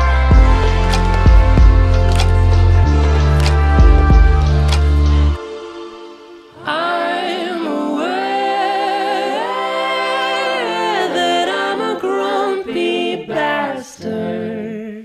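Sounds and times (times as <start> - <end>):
held low note: 0.0 - 6.5
choir-like singing with vibrato: 0.0 - 15.0.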